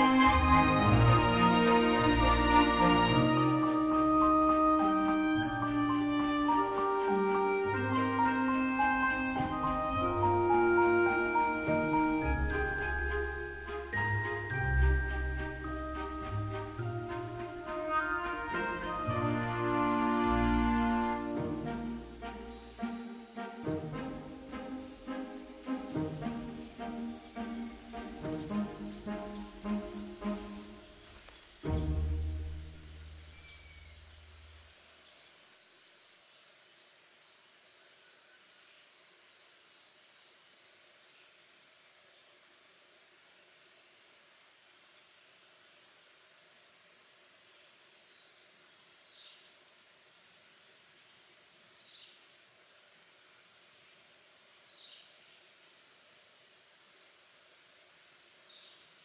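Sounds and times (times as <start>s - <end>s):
insects trilling: 0.0s - 42.2s.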